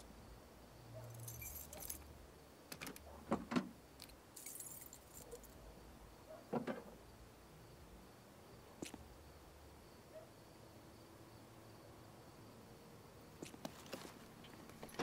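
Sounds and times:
keys jangling: 1.1 - 2.1, 4.4 - 5.6, 14.7 - 15.0.

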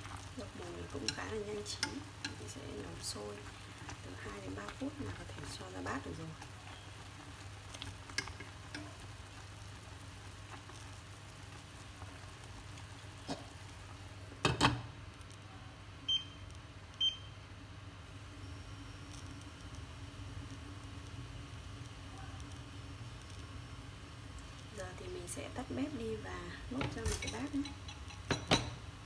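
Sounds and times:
low steady hum: 0.0 - 29.0
chopsticks clicking on steel pot: 0.9 - 3.0, 8.1 - 9.0.

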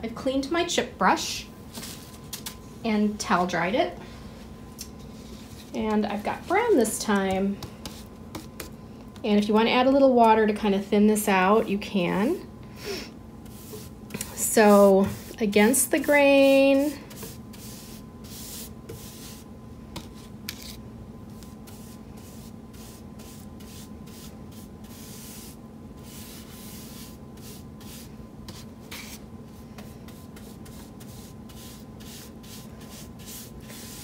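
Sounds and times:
faint steady hum: 0.0 - 34.0
scratchy brush strokes on wood: 13.4 - 19.5, 21.4 - 29.2.

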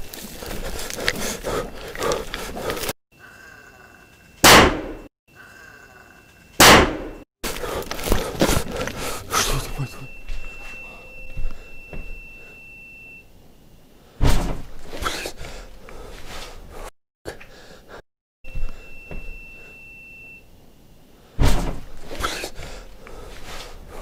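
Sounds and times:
crunching and rustling footsteps: 0.0 - 3.0, 6.9 - 11.7
loud sharp bangs: 4.4 - 5.1, 6.6 - 7.2.

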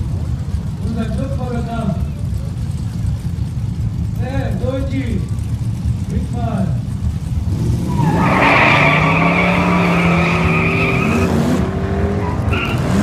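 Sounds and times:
car engine revving: 6.8 - 13.0
tyres squealing on tarmac: 7.8 - 13.0.

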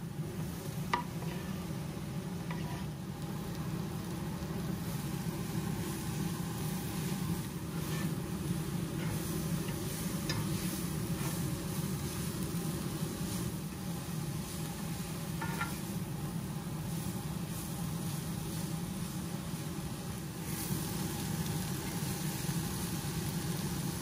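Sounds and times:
food sizzling in a skillet: 0.0 - 24.0
steady low hum: 0.0 - 24.0
spatula scraping: 2.4 - 3.0, 7.7 - 8.2, 15.4 - 15.9.

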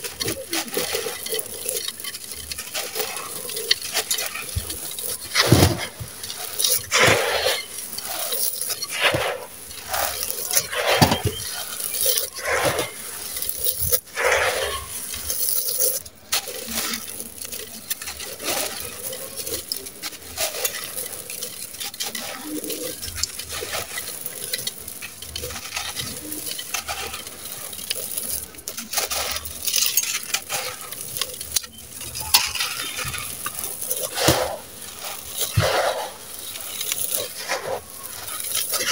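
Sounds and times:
dry cement chunks crumbling by hand: 0.0 - 38.9
grains falling into a clay pot: 0.0 - 38.9.

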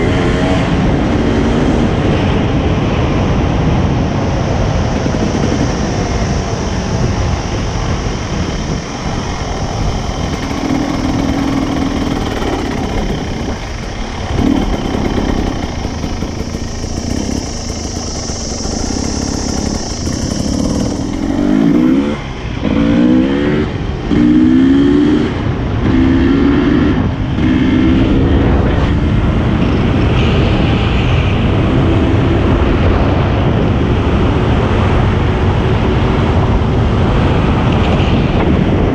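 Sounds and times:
dirt bike engine accelerating: 0.0 - 38.9
wind on microphone: 0.0 - 38.9.

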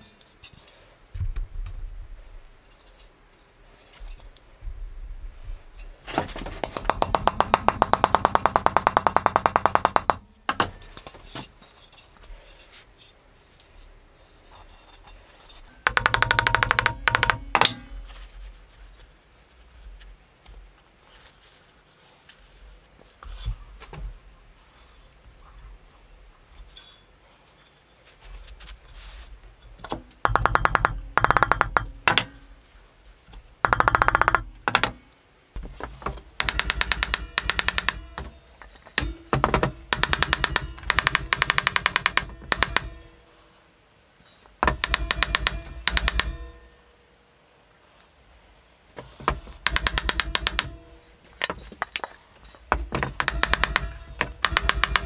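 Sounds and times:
hammer striking metal helmet: 6.5 - 10.8, 15.8 - 17.9, 36.4 - 43.2, 44.6 - 46.7, 49.3 - 50.9, 52.7 - 55.0
quiet knocks and handling: 14.5 - 30.2, 34.6 - 39.8.

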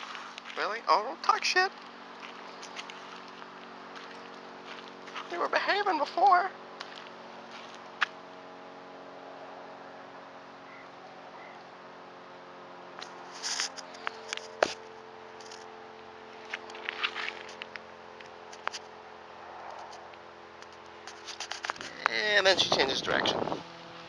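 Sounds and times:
footsteps on gravel: 0.0 - 8.2, 16.3 - 17.9, 19.7 - 22.1.

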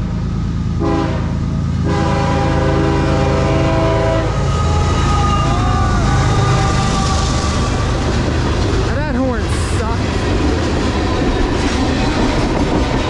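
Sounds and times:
diesel locomotive rumbling past: 0.0 - 13.0
train air horn blasts: 0.8 - 8.5.

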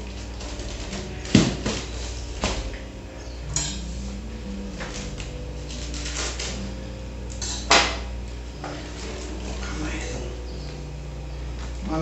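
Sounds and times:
knife and utensils clinking: 3.5 - 4.0
paper bag being cut: 4.9 - 6.7.

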